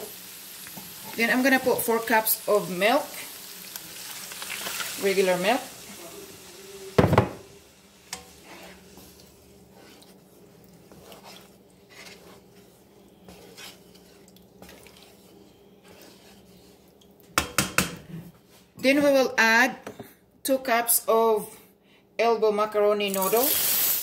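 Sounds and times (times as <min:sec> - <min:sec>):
wooden spatula scraping a pan: 0:08.1 - 0:17.1.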